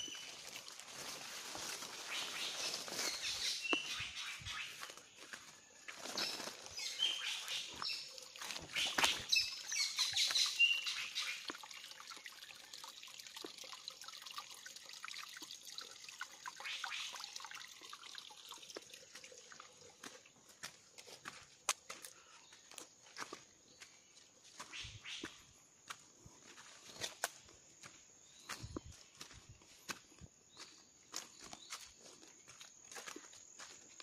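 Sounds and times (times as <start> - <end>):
brushing past undergrowth: 0.0 - 9.4
footsteps crunching dry leaves: 0.0 - 10.8, 20.0 - 34.0
bird chirps: 2.1 - 5.4, 6.0 - 11.5.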